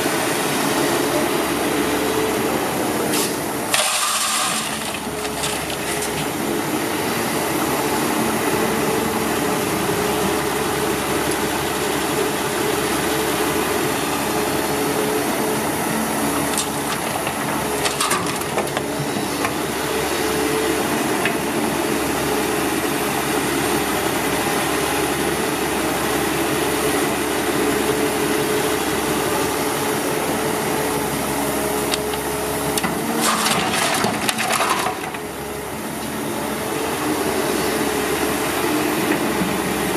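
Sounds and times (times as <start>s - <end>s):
diesel engine running: 0.0s - 39.9s.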